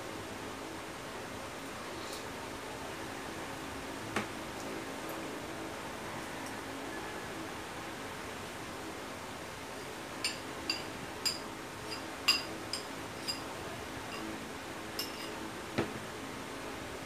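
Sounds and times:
spoon clinking on ceramic bowl: 0:10.2 - 0:13.4, 0:15.0 - 0:15.4.

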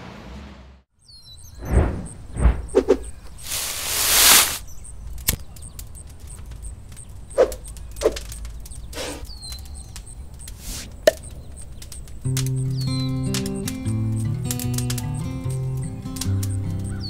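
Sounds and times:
whooshes: 0:01.6 - 0:04.6
faint even ticking: 0:04.7 - 0:17.0.

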